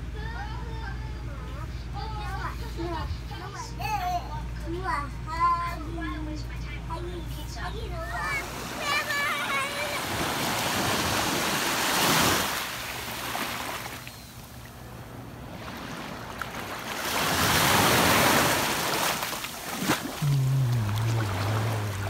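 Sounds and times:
small waves washing ashore: 0:08.3 - 0:14.1, 0:15.4 - 0:22.0.

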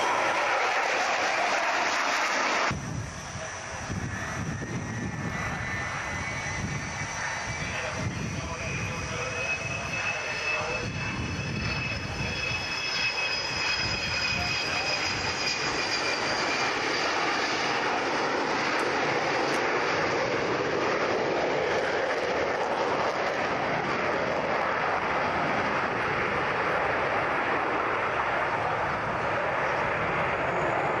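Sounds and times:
faint high whine: 0:00.0 - 0:20.2
loud jet roar: 0:00.0 - 0:31.0.

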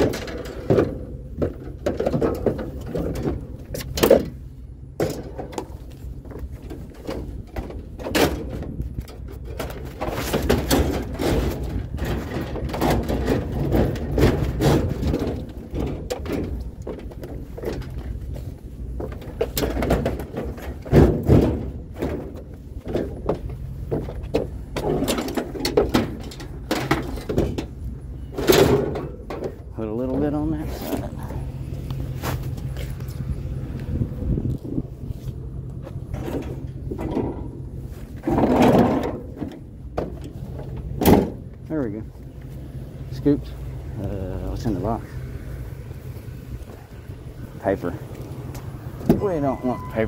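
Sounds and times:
low rumble: 0:00.0 - 0:50.0
objects clunking and scraping: 0:00.0 - 0:50.0
loud thumps: 0:19.0 - 0:29.6.

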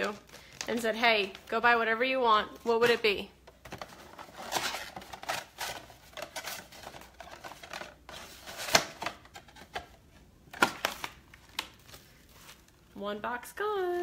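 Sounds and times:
cardboard box and packets rustling: 0:02.6 - 0:12.9.

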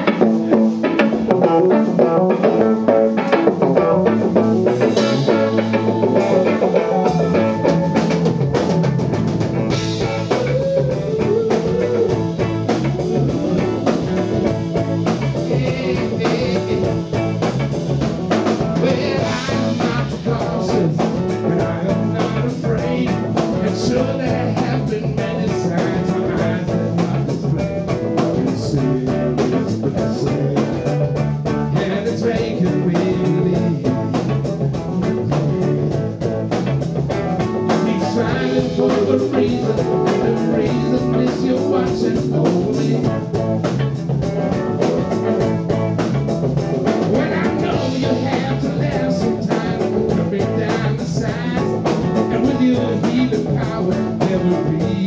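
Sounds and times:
bass guitar: 0:00.0 - 0:55.0
drum kit: 0:00.0 - 0:55.0
electric guitar: 0:00.0 - 0:55.0
keyboard: 0:00.0 - 0:55.0.

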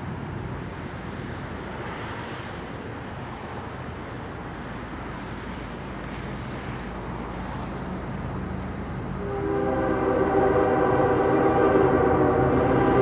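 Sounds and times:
diesel locomotive rumble: 0:00.1 - 0:13.0
locomotive air horn: 0:09.2 - 0:13.0.

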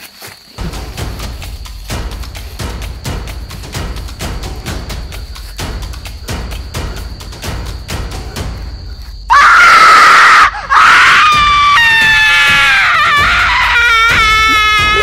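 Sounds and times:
drum beat: 0:00.6 - 0:09.8, 0:10.6 - 0:15.0
scary soundtrack music: 0:00.6 - 0:15.0
long high cry: 0:09.3 - 0:15.0
scream of terror: 0:09.3 - 0:15.0.

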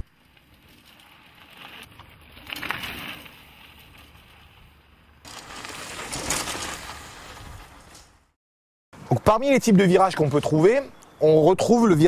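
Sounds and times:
bike tyres scrubbing over dirt: 0:00.0 - 0:08.3.

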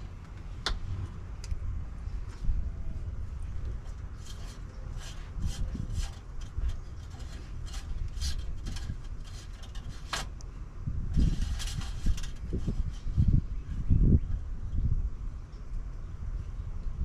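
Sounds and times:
low rumble: 0:00.0 - 0:17.0
handling clicks and rustles: 0:03.3 - 0:10.5, 0:11.1 - 0:13.3.

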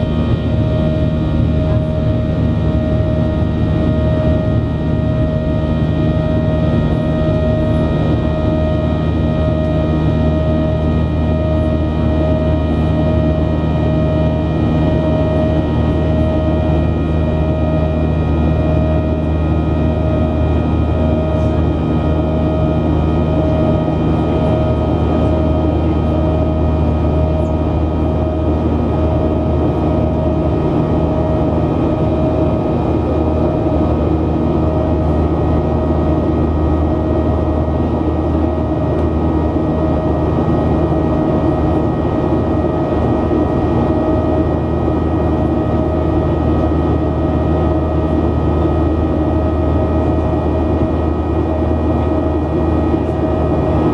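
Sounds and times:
aircraft cabin engine drone: 0:00.0 - 0:53.9.

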